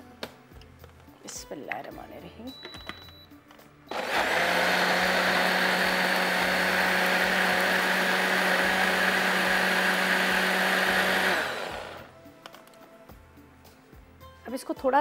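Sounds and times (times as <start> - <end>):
blender running: 3.9 - 12.1.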